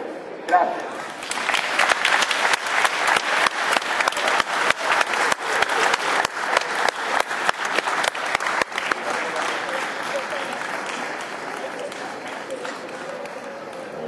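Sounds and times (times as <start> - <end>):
sharp individual claps: 0.5 - 14.0
crowd applauding: 0.9 - 14.0.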